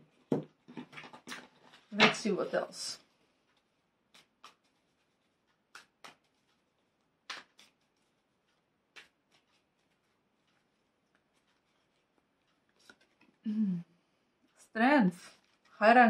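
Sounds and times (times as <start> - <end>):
soft card clicks: 4.1 - 4.8, 7.2 - 9.9.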